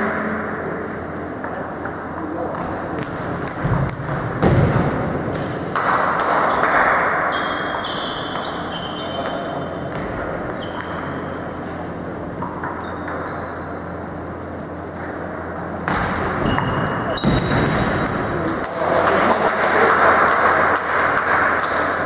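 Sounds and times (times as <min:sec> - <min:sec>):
table tennis balls bouncing: 0:01.0 - 0:22.0.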